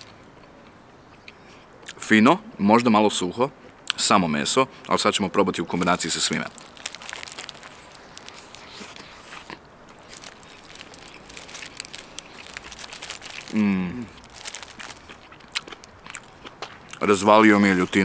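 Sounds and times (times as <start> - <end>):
foil wrapper crinkling: 5.7 - 16.5
biting into crisp flatbread: 5.8 - 17.0
mouth-closed chewing: 6.4 - 17.2
person humming: 13.5 - 14.2.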